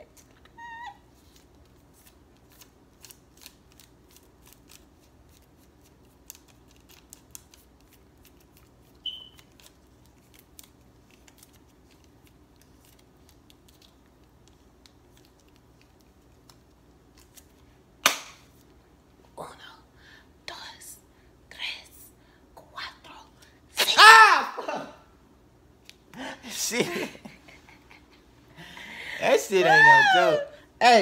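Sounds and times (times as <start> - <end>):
wax strip crackling on skin: 1.1 - 18.7
short high squeak: 9.0 - 9.4.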